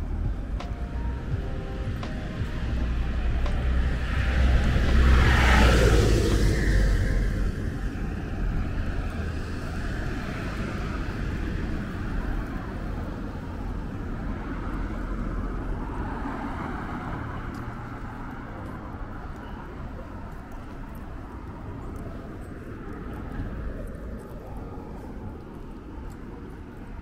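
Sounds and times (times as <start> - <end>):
low rumble of traffic: 0.0 - 27.0
vehicle passing close: 1.2 - 12.6.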